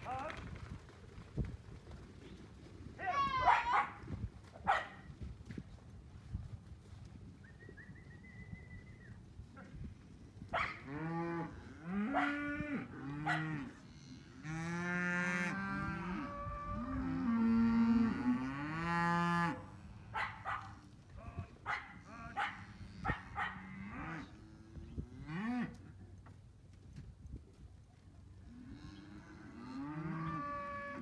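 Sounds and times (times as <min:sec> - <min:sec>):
cattle mooing: 0:28.6 - 0:31.0.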